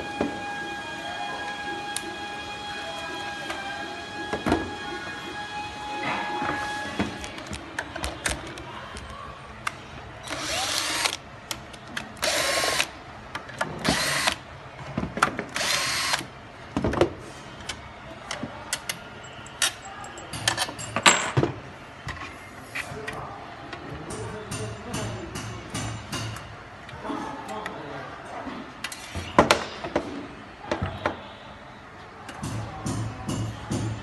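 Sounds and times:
cordless drill whirring: 10.3s - 11.2s, 13.8s - 14.4s, 15.6s - 16.2s.

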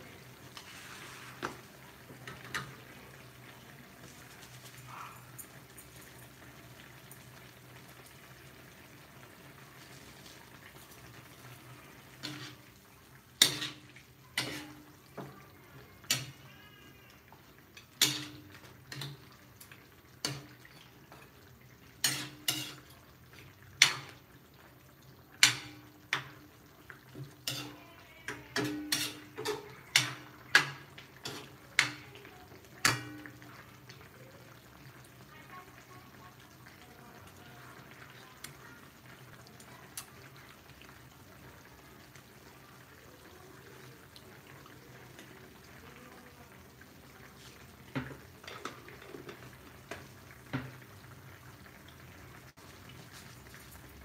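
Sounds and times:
metal ladle knocking metal pan: 17.9s - 19.2s, 25.4s - 26.4s, 27.4s - 32.0s, 32.8s - 33.4s.

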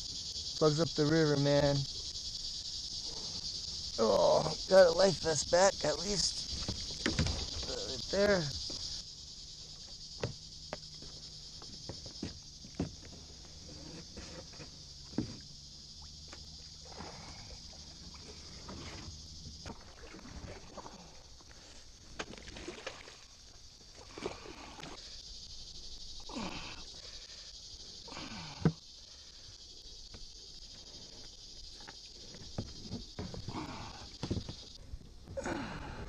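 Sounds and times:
steady high hiss: 0.0s - 20.1s
kayak hull scraping on mud: 13.4s - 15.4s, 18.1s - 20.9s
paddle strokes in water: 16.3s - 24.9s.

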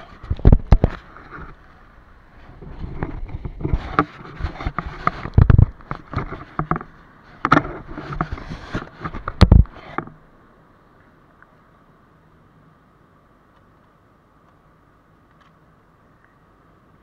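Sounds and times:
knocks and scrapes on camera housing: 2.6s - 10.2s.

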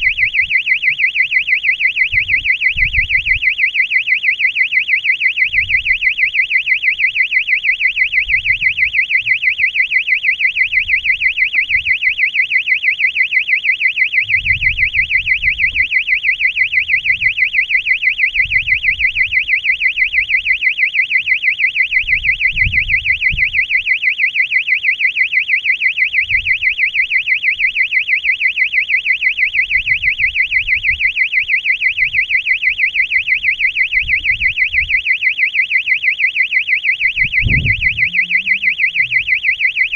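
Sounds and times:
warbling electronic siren: 0.0s - 39.9s
low buffeting rumbles: 37.1s - 39.5s.

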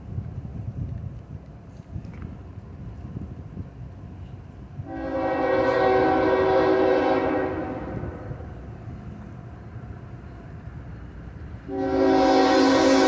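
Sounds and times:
rail cars rumbling past: 0.0s - 13.0s
locomotive air horn chord: 4.8s - 8.4s, 11.7s - 13.0s.

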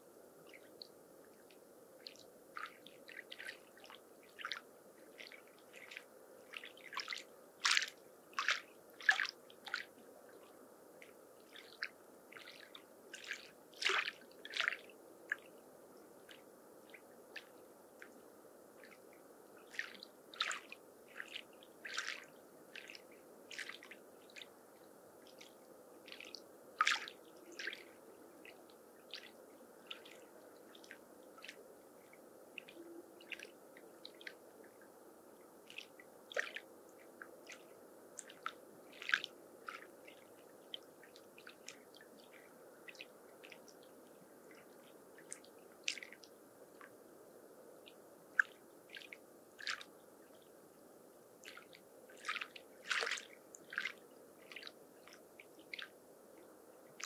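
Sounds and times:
small waves lapping: 1.4s - 15.5s, 16.2s - 18.1s, 18.8s - 24.6s, 25.2s - 34.4s, 35.6s - 46.9s, 47.8s - 50.5s, 51.4s - 57.0s
water splashes and drips: 1.5s - 9.9s, 11.0s - 15.4s, 19.7s - 24.5s, 25.3s - 31.6s, 35.7s - 43.9s, 44.5s - 46.9s, 48.4s - 50.4s, 51.4s - 55.9s.

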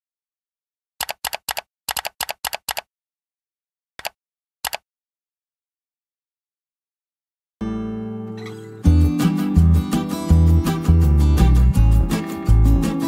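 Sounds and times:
keystroke clicks: 1.0s - 2.9s, 4.0s - 4.8s
mouse double clicks: 4.0s - 4.8s.

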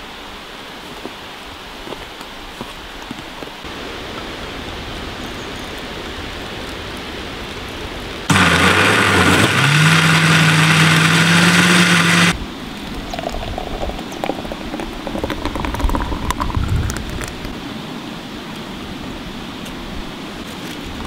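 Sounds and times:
loud motor running: 8.3s - 12.4s.

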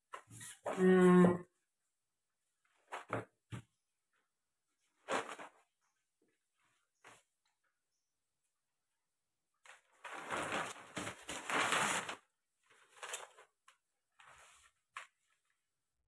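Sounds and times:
paper rustling and crinkling: 5.0s - 5.8s, 9.7s - 15.7s.

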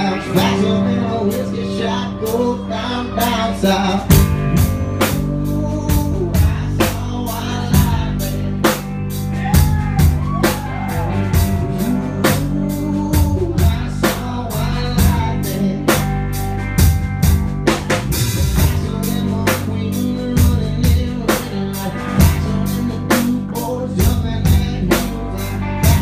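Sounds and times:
country rock band playing: 0.0s - 26.0s
distorted electric guitar: 0.0s - 26.0s
lap steel guitar: 0.0s - 26.0s
drum kit beat: 4.0s - 26.0s.

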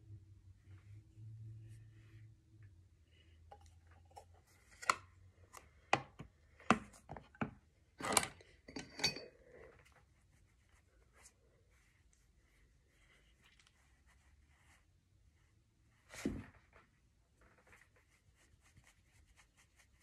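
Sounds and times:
plastic containers clicking and tapping: 5.6s - 7.6s.

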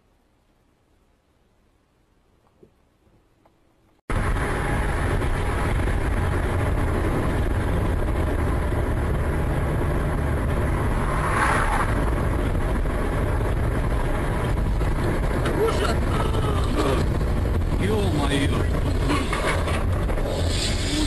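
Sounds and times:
car road and engine noise: 0.0s - 21.0s
hissing noise: 20.2s - 21.0s.

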